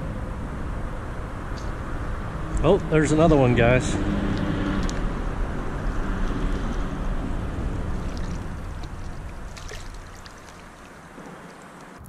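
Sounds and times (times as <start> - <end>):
river current rushing: 2.1 - 12.0.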